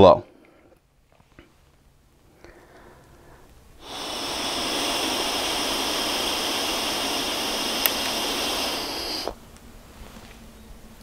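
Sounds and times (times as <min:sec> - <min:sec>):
breath blown into mouthpiece: 0:03.3 - 0:09.4
breathalyzer pump click: 0:03.8 - 0:09.4.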